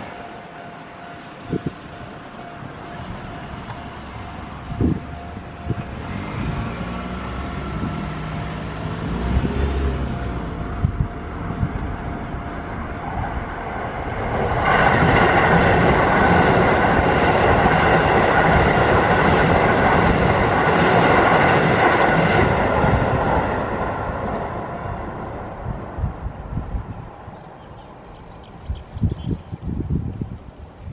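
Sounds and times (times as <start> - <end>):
faint crossing warning tones: 0.0 - 20.6
electric train passing: 0.0 - 30.9.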